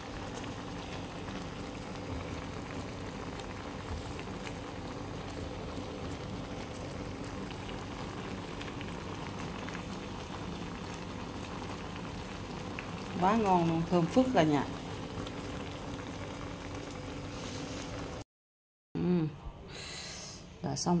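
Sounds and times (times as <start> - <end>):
water boiling in a pot: 0.0 - 18.2.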